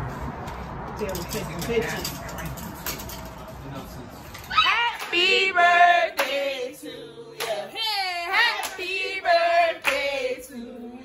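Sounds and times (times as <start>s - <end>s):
group of people singing: 4.6s - 11.0s
hand claps: 5.0s - 5.2s, 6.2s - 6.4s, 7.4s - 7.7s, 8.6s - 8.8s, 9.8s - 10.1s.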